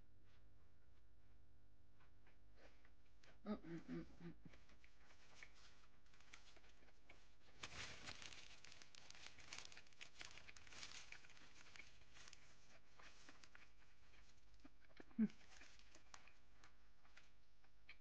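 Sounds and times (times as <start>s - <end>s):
paper napkin crinkling: 5.0s - 14.6s, 15.4s - 16.4s.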